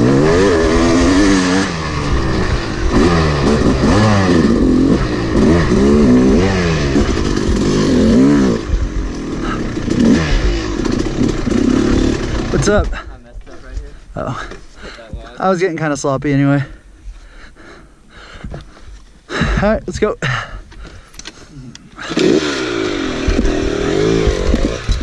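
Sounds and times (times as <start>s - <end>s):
dirt bike engine revving: 0.0s - 13.1s, 22.0s - 25.0s.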